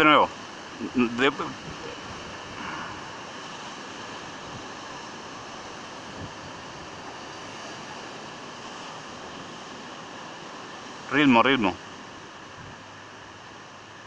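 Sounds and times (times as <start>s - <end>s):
waves breaking on rocky shore: 0.0s - 14.0s
wind: 0.0s - 14.0s.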